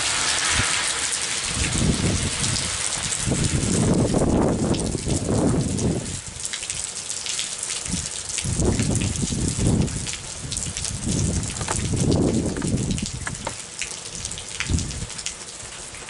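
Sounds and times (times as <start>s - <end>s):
heavy rain pouring: 0.0s - 16.0s
low thunder rumbling: 8.5s - 13.4s.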